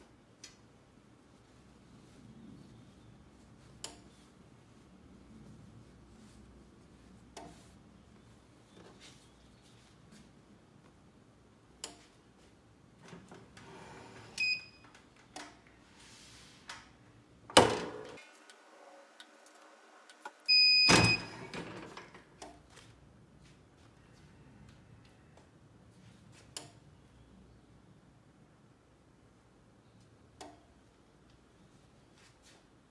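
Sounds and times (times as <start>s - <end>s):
heat press beeping: 20.4s - 21.6s.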